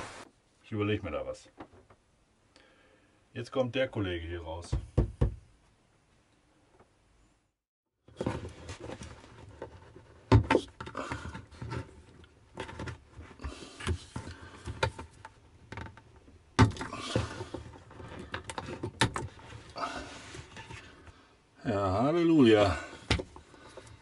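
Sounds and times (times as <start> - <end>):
hands handling plastic pipe connector: 8.1 - 21.1.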